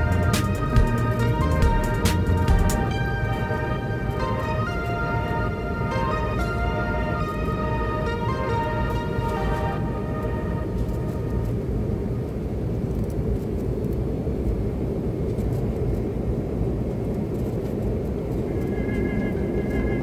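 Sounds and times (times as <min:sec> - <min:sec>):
background music: 0:00.0 - 0:11.8
airliner engine rumble in cabin: 0:00.0 - 0:20.0.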